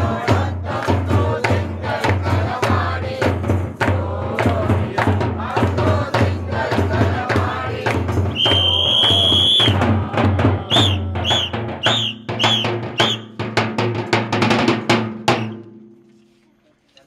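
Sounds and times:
drums beating fast rhythm: 0.0 - 15.6
whistle blasts: 8.3 - 9.8, 10.7 - 13.4.

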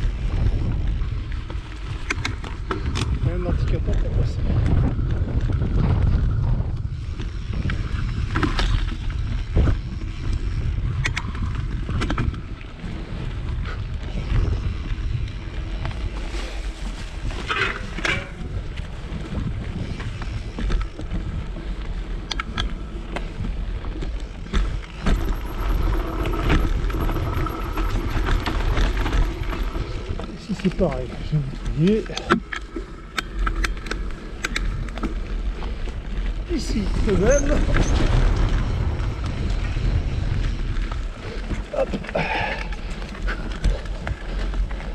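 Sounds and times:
wind and tyre rumble: 0.0 - 44.9
bicycle freewheel ticking: 24.8 - 30.4.

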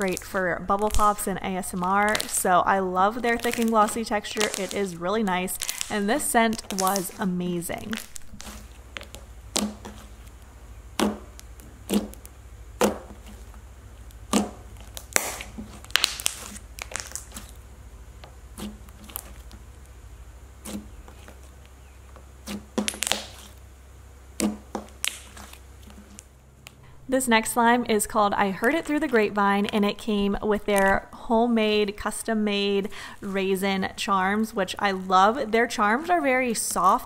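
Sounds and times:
sticky slime clicks: 14.3 - 17.5.

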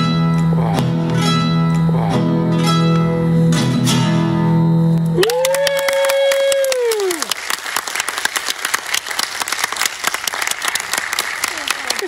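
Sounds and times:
high held cheer: 5.1 - 12.0
audience applause: 5.2 - 12.0.

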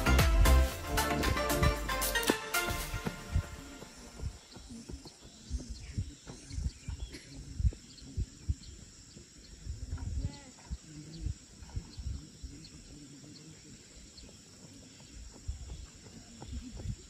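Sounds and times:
footsteps running on grass: 1.2 - 7.1, 12.8 - 17.0
insects chirping: 1.6 - 17.0.

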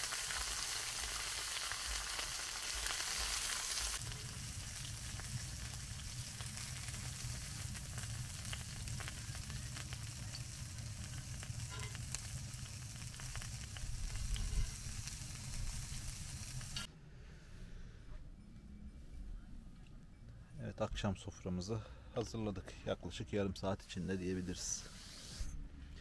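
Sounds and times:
food sizzling in grill pan: 0.0 - 16.9.

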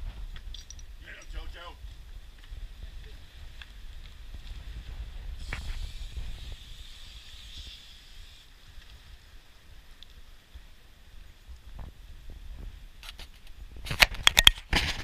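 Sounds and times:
wind rumbling on microphone: 0.0 - 15.0
hissing rush: 4.7 - 9.0.

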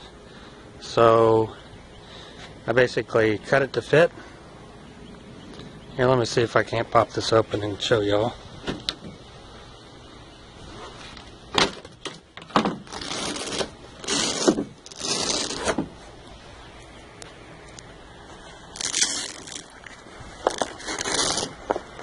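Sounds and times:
cover scraping and rustling: 10.7 - 16.0, 20.4 - 22.0.

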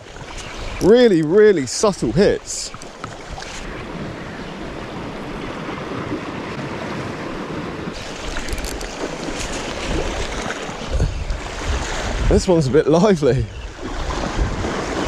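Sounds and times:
wind on microphone: 1.9 - 15.0
waves washing against rocks: 5.5 - 13.3.

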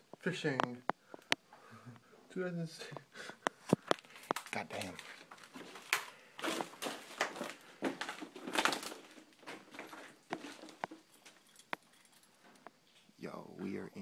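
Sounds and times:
footsteps on gritty floor: 3.5 - 11.5.

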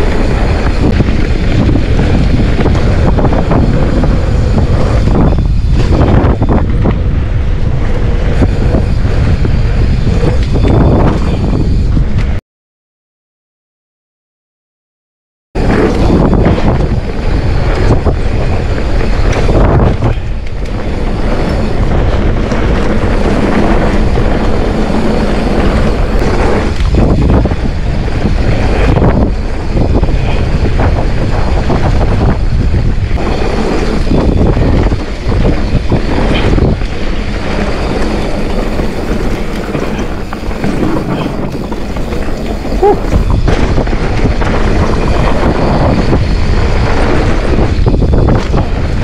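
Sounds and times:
tyres rumbling on dirt: 0.0 - 12.4, 15.6 - 49.0
wind buffeting microphone: 0.0 - 12.4, 15.6 - 49.0
bike knocks and rattles: 15.6 - 49.0.

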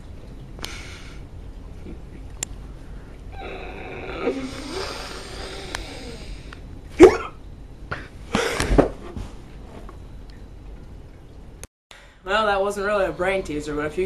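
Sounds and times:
boy croaking: 3.4 - 6.4.

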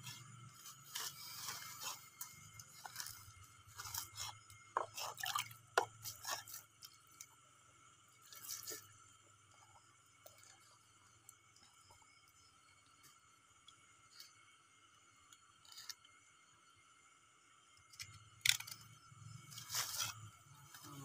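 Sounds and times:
water dripping: 4.5 - 7.4.

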